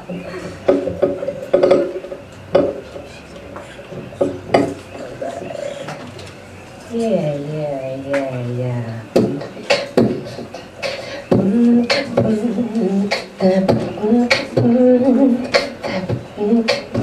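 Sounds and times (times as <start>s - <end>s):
woman singing wordlessly: 11.2s - 17.0s.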